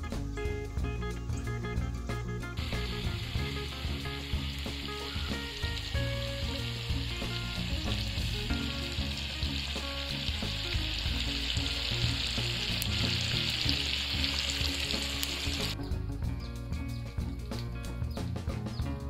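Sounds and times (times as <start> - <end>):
oil sizzling in a wok: 1.4 - 15.8.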